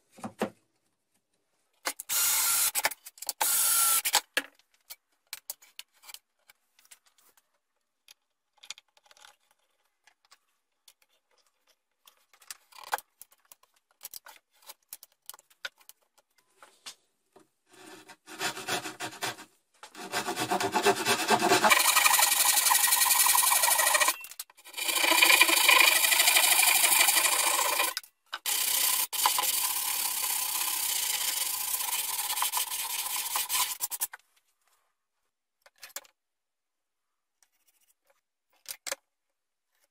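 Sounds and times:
sanding block rasping on wood: 18.2 - 24.1.

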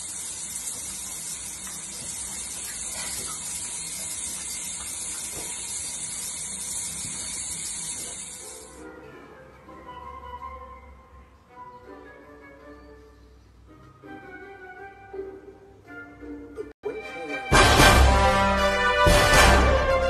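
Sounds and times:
spraying water hiss: 0.0 - 8.8.

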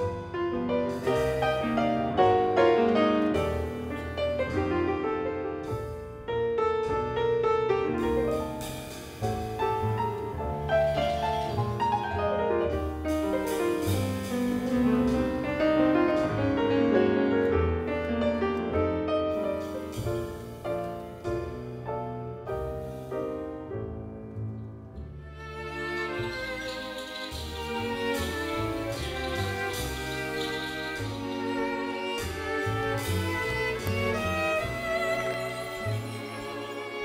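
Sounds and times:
grand piano played fast: 0.0 - 37.0.

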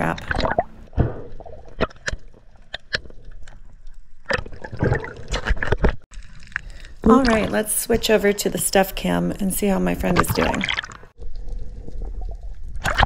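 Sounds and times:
sharp clicks and knocks underwater: 0.0 - 7.5, 10.1 - 13.0
underwater gurgling: 0.0 - 8.0, 10.0 - 13.0.

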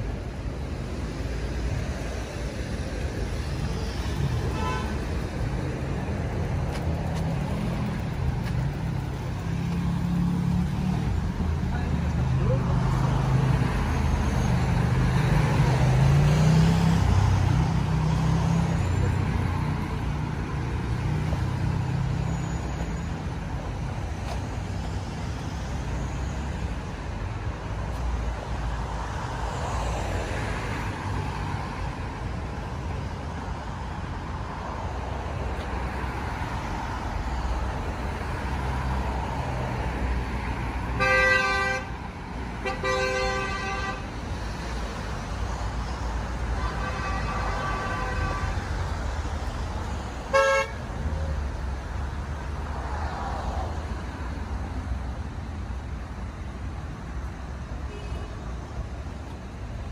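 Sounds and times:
city road traffic rumble: 0.0 - 59.9
car horn honking: 4.5 - 5.0, 41.0 - 41.9, 42.6 - 44.1, 46.6 - 48.6, 50.3 - 50.8.

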